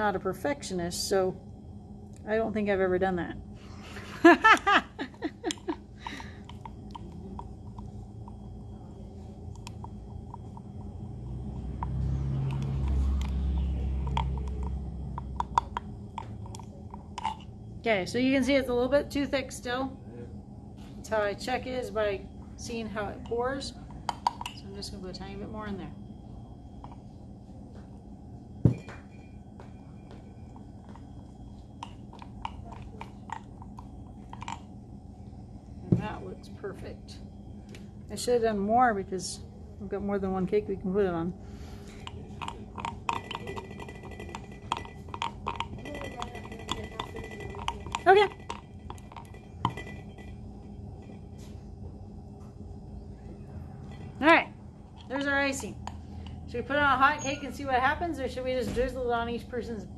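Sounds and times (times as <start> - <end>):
spoon clinking against glass jar: 42.0 - 50.4.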